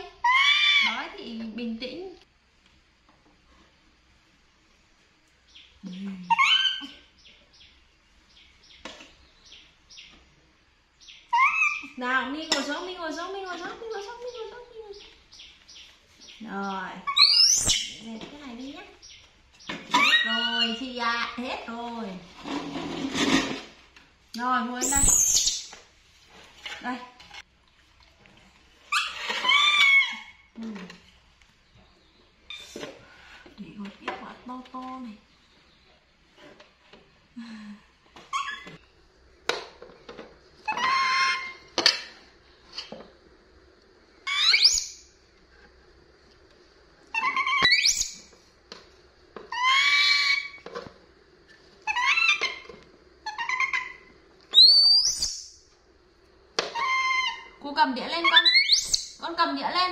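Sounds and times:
monkey high call: 6.1s - 7.0s, 11.3s - 12.0s, 47.1s - 48.2s, 49.5s - 50.6s, 51.8s - 52.6s, 53.2s - 55.3s, 56.7s - 57.6s.

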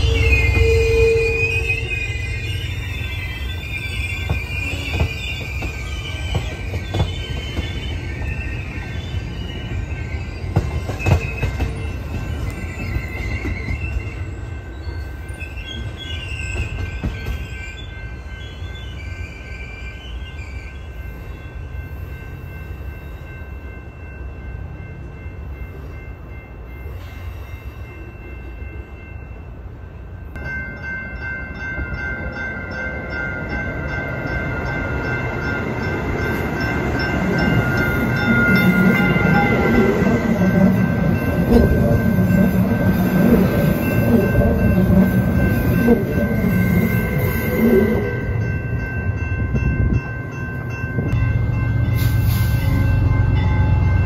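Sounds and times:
train rumble: 0.0s - 19.7s, 20.7s - 54.0s
train wheel squeal: 0.0s - 24.1s, 31.2s - 54.0s.

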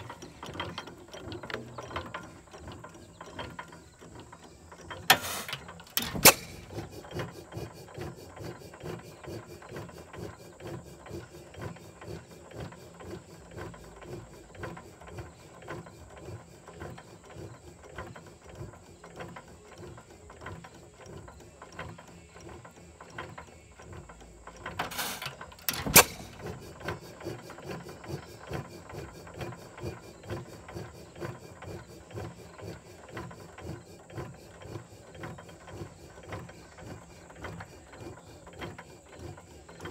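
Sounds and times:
engine valve gear clicking: 0.0s - 7.7s, 18.1s - 30.0s.

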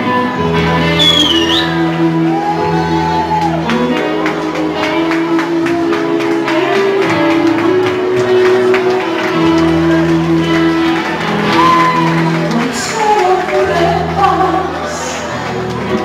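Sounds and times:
live pop band playing: 0.0s - 16.0s.

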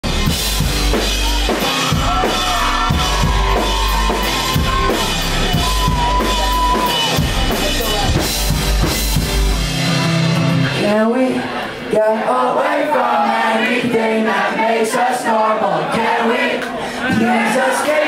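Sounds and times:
deep bass: 0.0s - 10.8s
drum kit beat: 0.0s - 10.8s.

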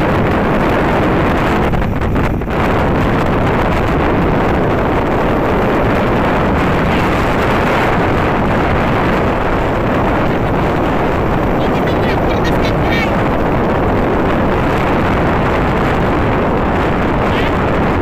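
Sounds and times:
motorcycle road noise: 0.0s - 18.0s
wind rush on microphone: 0.0s - 18.0s.

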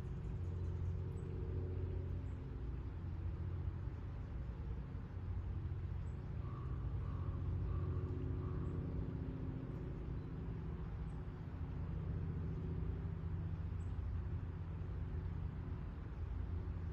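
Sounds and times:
distant road traffic: 0.0s - 16.9s.

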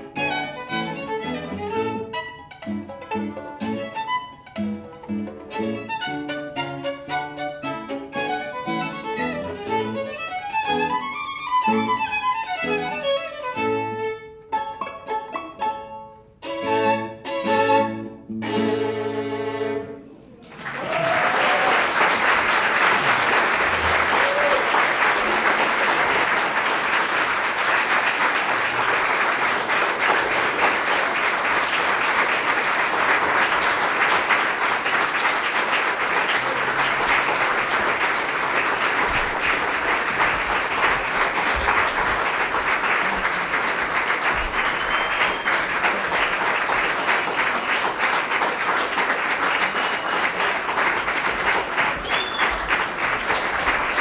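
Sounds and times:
audience applauding: 20.2s - 54.0s.

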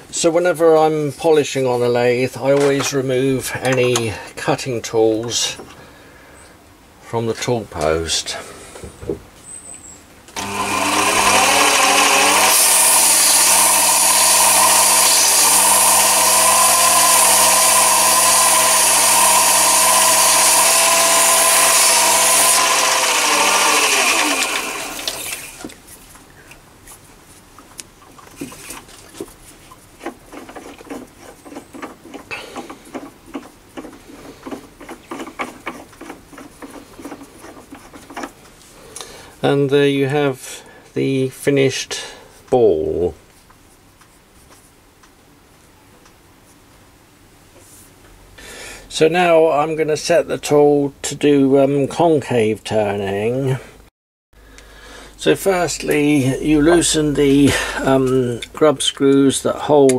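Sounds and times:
lathe motor whining: 10.4s - 25.6s.

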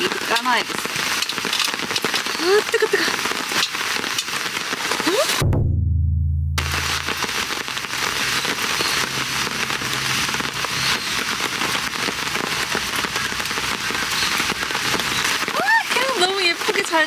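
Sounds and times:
rain pattering on a tarp: 0.0s - 5.4s, 6.9s - 17.0s
low hum: 5.4s - 8.1s.

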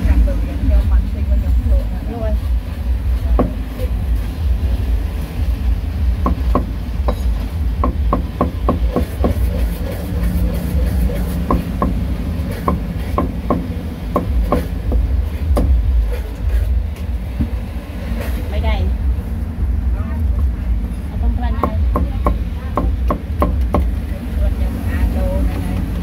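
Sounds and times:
steady low rumble: 0.0s - 26.0s
cleaver chopping on wooden block: 7.8s - 9.9s, 11.2s - 15.8s.

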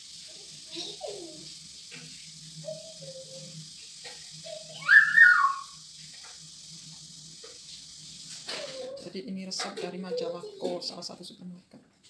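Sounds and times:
faint short whistled notes: 4.8s - 5.7s
loud whistle-like call: 4.8s - 5.8s.

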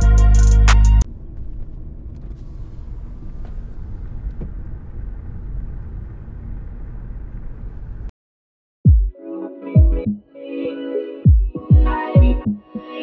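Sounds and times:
road and engine noise in car: 1.0s - 8.1s.

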